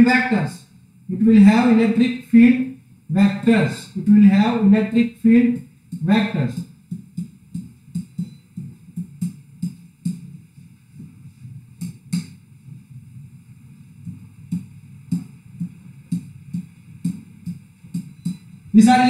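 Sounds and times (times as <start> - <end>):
stylus knocking on whiteboard: 5.5 - 11.2, 14.0 - 18.4.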